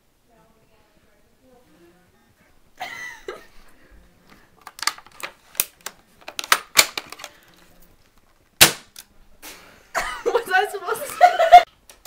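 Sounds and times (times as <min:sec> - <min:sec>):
plastic toy gun clicks and rattles: 0:04.6 - 0:07.5.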